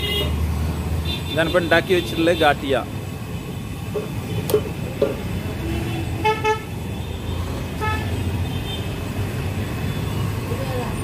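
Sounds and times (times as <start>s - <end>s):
vehicle horns tooting: 0.0s - 0.4s, 1.0s - 2.8s, 5.6s - 8.9s
low traffic rumble: 0.0s - 11.0s.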